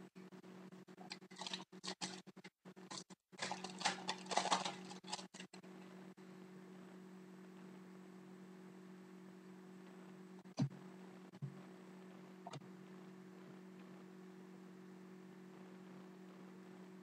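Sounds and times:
faint low hum: 0.0s - 17.0s
foil wrapper tearing and crinkling: 1.3s - 2.2s, 2.9s - 5.5s.

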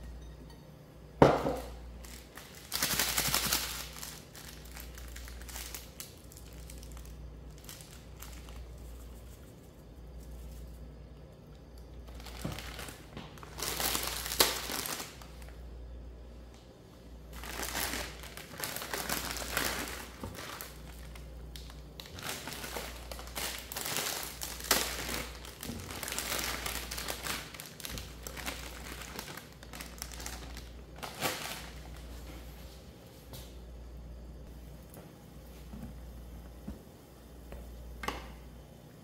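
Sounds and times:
low steady hum: 0.0s - 39.0s
plastic packaging crinkling: 1.6s - 10.9s, 12.0s - 15.6s, 17.3s - 32.6s.

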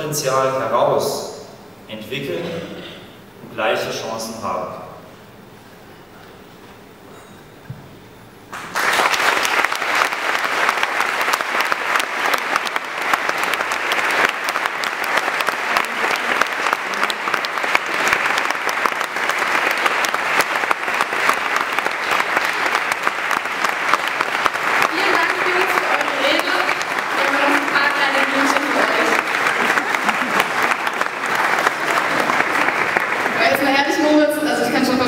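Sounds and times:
audience applause: 8.5s - 34.4s.

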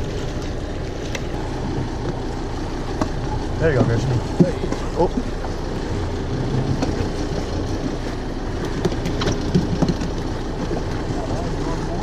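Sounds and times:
boat engine idling: 0.0s - 12.0s
wind and water wash: 0.0s - 12.0s.

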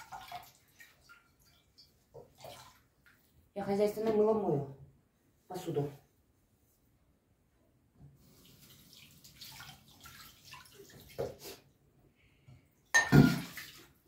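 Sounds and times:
water splashing in sink: 0.0s - 4.4s, 8.2s - 11.7s, 12.8s - 14.0s.

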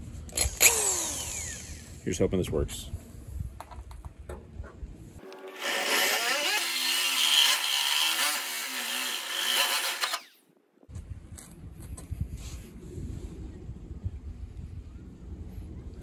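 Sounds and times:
drill hole saw grinding through steel: 0.4s - 1.9s, 5.2s - 10.4s.

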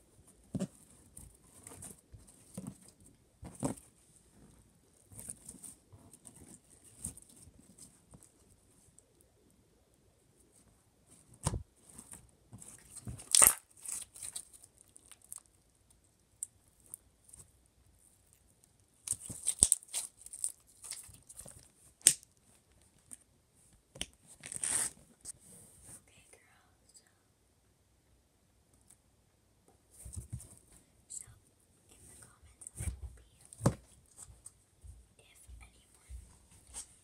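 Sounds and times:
slime stretched and squished: 12.6s - 15.5s, 19.0s - 22.3s.

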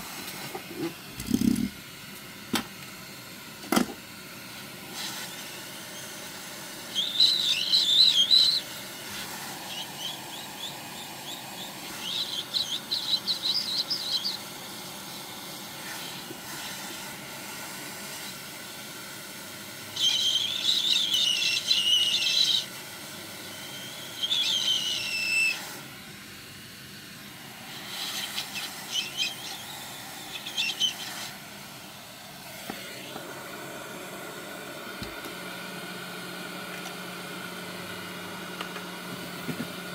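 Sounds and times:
hot air gun blowing: 0.0s - 1.9s, 4.6s - 26.1s, 27.2s - 34.5s
high bird-like chirping: 6.9s - 8.7s, 9.7s - 14.5s, 20.0s - 22.7s, 28.0s - 31.2s.

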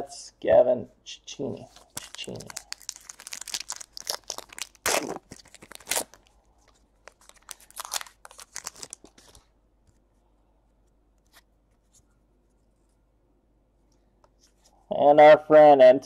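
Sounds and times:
trading cards rustling: 1.6s - 9.5s.

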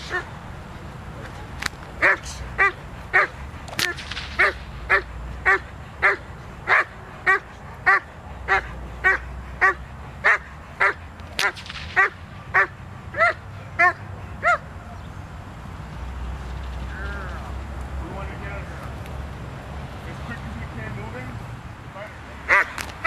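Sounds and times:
sharp cracks: 1.6s - 2.0s, 3.6s - 4.8s, 11.2s - 12.2s
dog barking: 2.0s - 3.4s, 4.4s - 14.7s.

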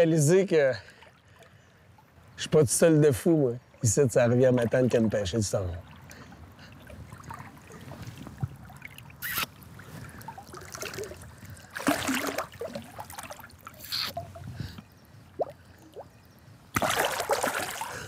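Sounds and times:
river water trickling and lapping: 0.0s - 18.0s
fish splashing in water: 8.6s - 14.3s, 16.7s - 18.0s.

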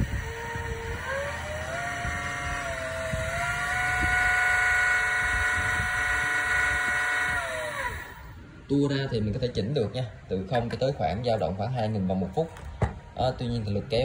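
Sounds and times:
servo motor whine: 0.0s - 8.6s.

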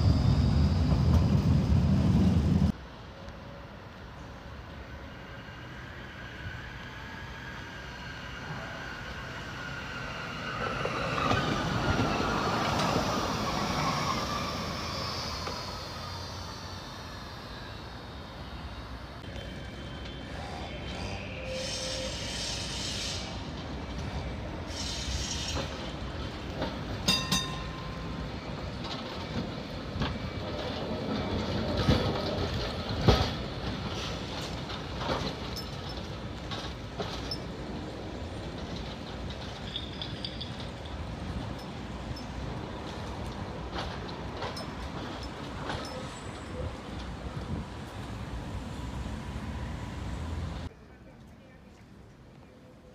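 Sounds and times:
tram electric whine: 0.0s - 50.7s
tram wheels rumbling on rails: 0.0s - 50.7s
tram wheels clacking over rail joints: 23.4s - 48.8s.

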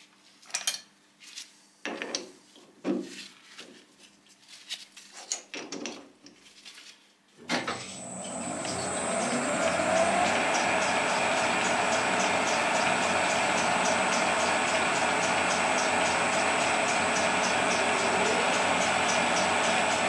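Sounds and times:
lathe spindle starting with clunk: 7.5s - 20.0s
lathe running up to speed: 7.6s - 20.0s.

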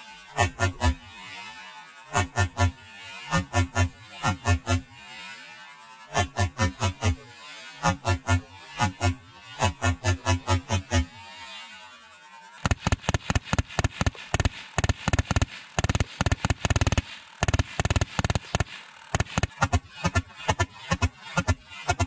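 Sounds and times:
pellet gun automatic fire: 12.6s - 22.0s.

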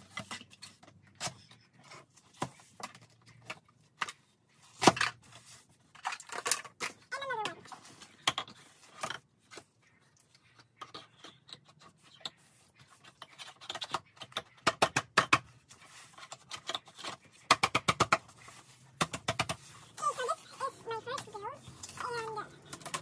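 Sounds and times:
plastic toy parts clicking: 5.9s - 7.6s, 16.2s - 18.2s.

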